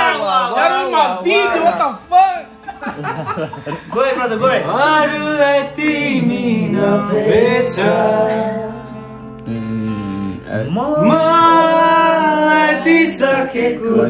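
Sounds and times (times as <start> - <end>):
acoustic guitar: 0.0 - 14.0
man singing: 4.3 - 14.0.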